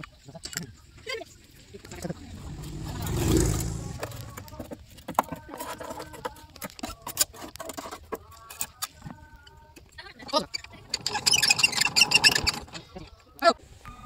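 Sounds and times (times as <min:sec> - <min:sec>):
low rumble: 0:02.1 - 0:04.6
hoe scraping metal casing: 0:10.3 - 0:12.9.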